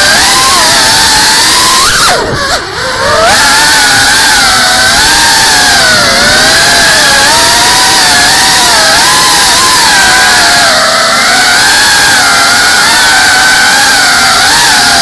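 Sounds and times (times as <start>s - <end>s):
drone motors whining: 0.0s - 15.0s.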